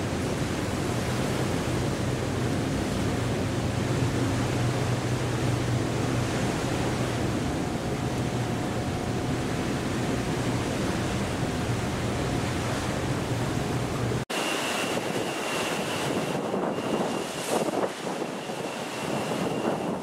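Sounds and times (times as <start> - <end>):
sea wash: 0.0 - 20.0
wind buffeting microphone: 0.0 - 20.0
faint high whine: 14.3 - 20.0.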